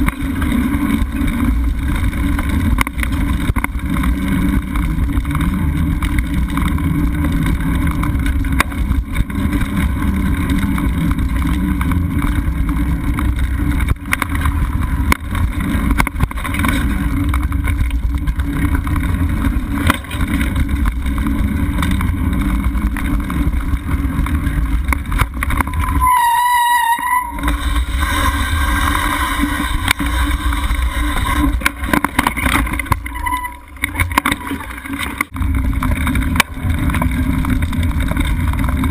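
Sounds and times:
bike clicking and knocking over bumps: 0.0s - 38.9s
wind rumble on microphone: 0.0s - 38.9s
brief high-pitched squeal: 25.8s - 31.5s.

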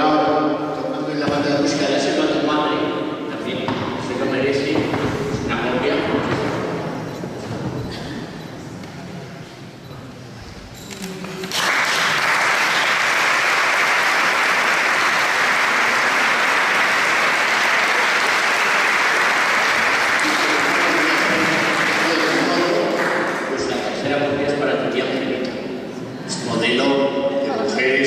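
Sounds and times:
audience applauding: 11.4s - 23.8s.

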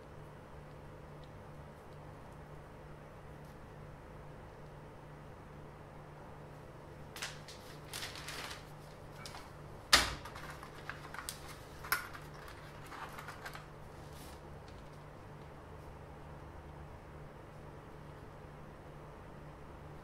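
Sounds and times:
faint steady hum: 0.0s - 20.0s
paper rustling: 7.1s - 15.1s.

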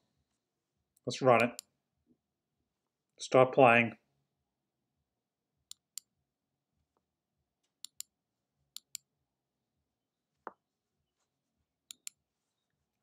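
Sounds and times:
mouse button clicks: 11.9s - 12.2s.

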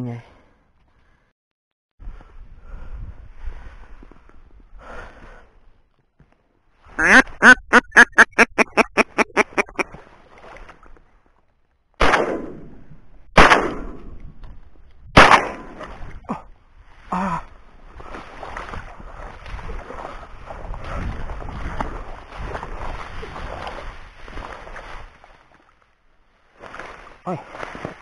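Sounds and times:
duck quacking: 6.9s - 9.9s
shotgun shots: 12.0s - 12.7s, 13.4s - 14.1s, 15.1s - 15.8s
marsh grass rustling: 16.8s - 28.0s.

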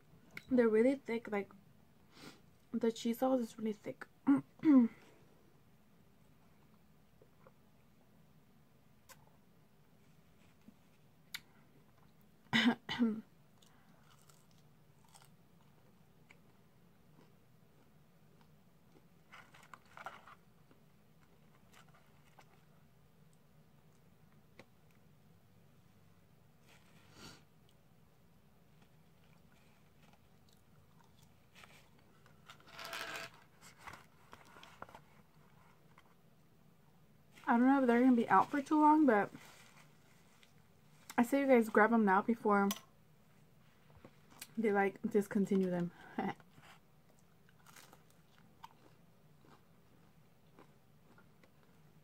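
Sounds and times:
person clearing throat: 4.3s - 5.0s
faint chewing: 13.5s - 25.0s, 28.7s - 32.6s, 46.4s - 52.0s.

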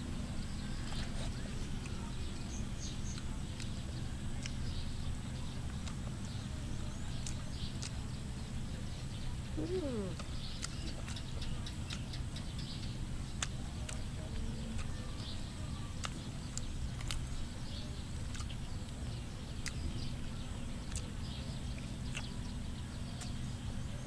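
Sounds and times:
low steady rumble: 0.0s - 24.0s
eating mouth clicks and smacks: 5.7s - 8.2s, 9.0s - 15.4s, 16.0s - 19.0s, 20.8s - 23.4s.

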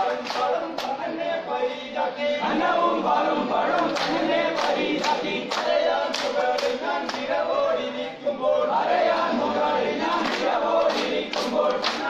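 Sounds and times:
sharp hand claps: 0.0s - 1.0s, 3.8s - 7.3s, 10.1s - 12.0s
men singing together: 0.0s - 12.0s.

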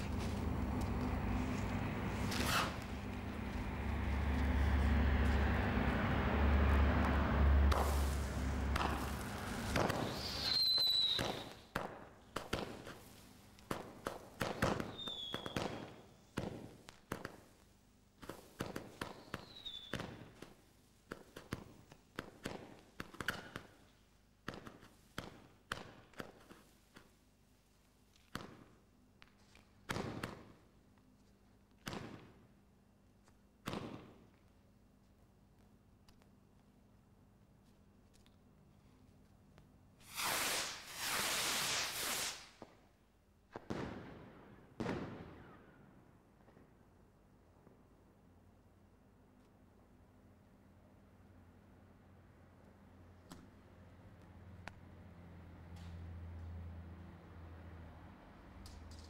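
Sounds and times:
firework hissing: 1.3s - 3.5s, 7.4s - 11.6s, 40.0s - 42.7s
firework falling whistles: 2.2s - 3.0s, 7.6s - 11.7s, 14.7s - 16.0s, 19.0s - 20.2s, 40.0s - 42.8s
firework bangs and crackles: 7.0s - 17.6s, 18.2s - 23.8s, 29.9s - 30.6s, 31.8s - 32.5s, 33.6s - 34.4s, 40.0s - 46.8s.

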